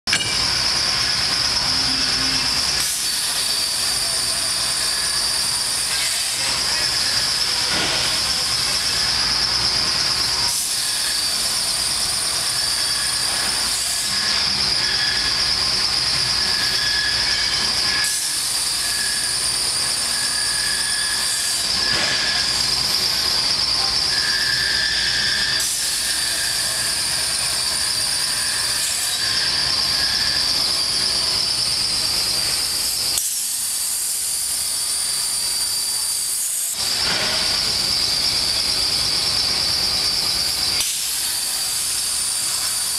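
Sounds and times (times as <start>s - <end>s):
plasma torch hissing: 0.2s - 42.9s
thin whistle: 10.3s - 32.5s.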